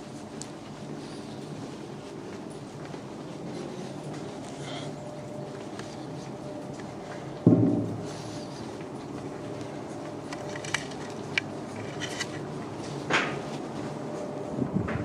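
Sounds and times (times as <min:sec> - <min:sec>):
machinery humming: 0:00.0 - 0:15.0
heavy thump: 0:07.4 - 0:08.1.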